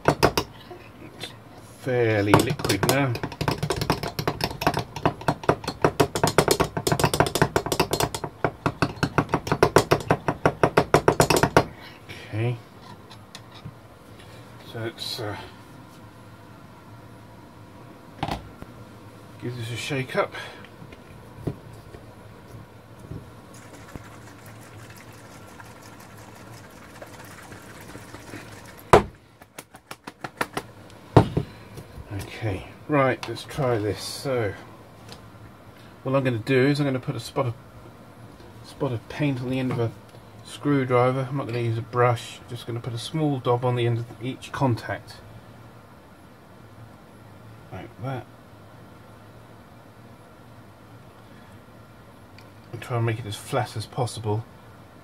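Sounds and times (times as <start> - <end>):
jar shaken ticking: 23.5 - 28.9.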